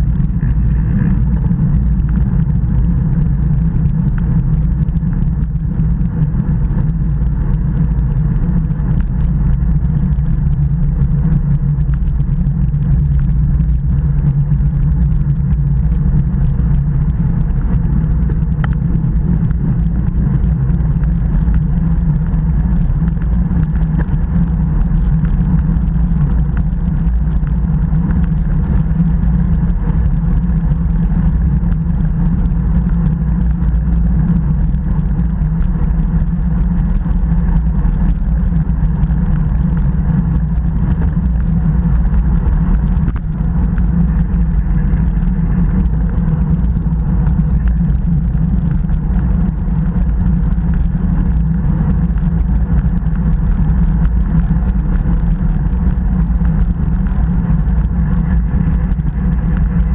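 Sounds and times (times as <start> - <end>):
wind rumble buffeting microphone: 0.0 - 59.9.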